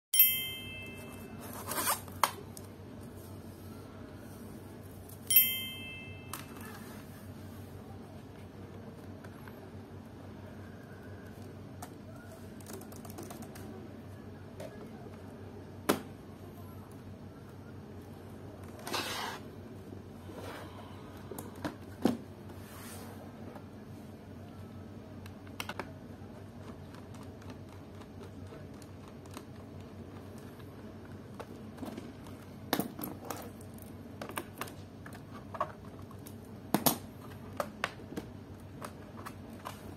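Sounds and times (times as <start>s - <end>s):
bell-like notification chime: 0.2s - 1.4s, 5.3s - 6.6s
plastic scrape: 1.4s - 2.3s, 18.7s - 19.5s.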